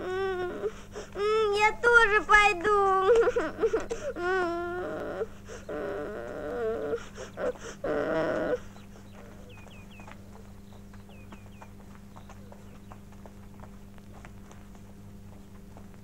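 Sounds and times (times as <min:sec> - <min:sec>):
puppy whining: 0:03.2 - 0:11.2
light footsteps: 0:08.2 - 0:16.0
small bird chirping: 0:08.4 - 0:13.2.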